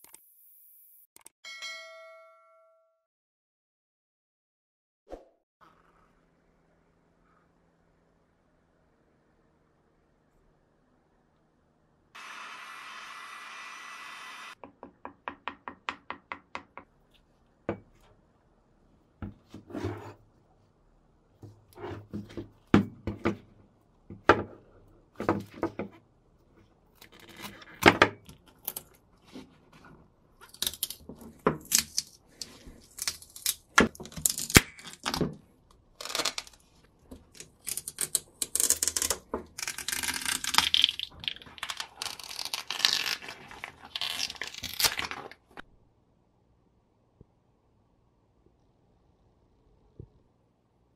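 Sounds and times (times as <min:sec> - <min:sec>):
wrapping tearing and crinkling: 0:31.6 - 0:35.2, 0:37.3 - 0:45.6.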